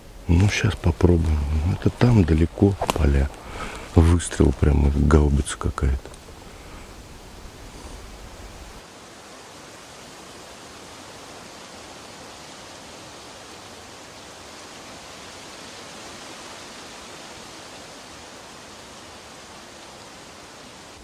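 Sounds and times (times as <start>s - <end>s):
steady rushing noise: 0.0s - 13.6s.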